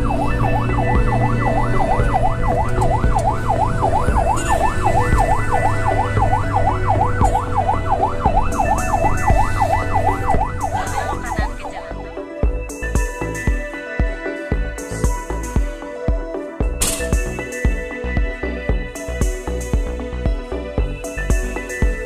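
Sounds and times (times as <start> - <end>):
ambulance siren yelping: 0.0 - 12.4
vehicle drone: 0.0 - 12.7.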